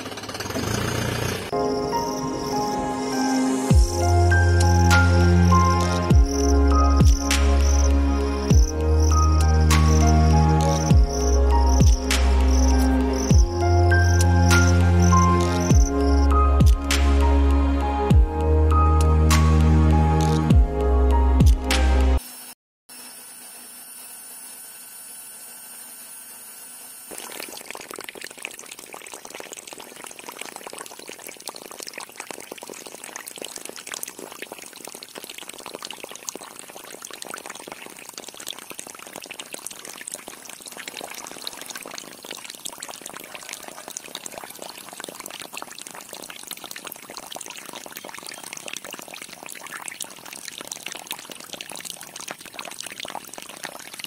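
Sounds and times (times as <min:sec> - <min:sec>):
water splashing into puddle: 0:03.8 - 0:17.3, 0:27.1 - 0:54.0.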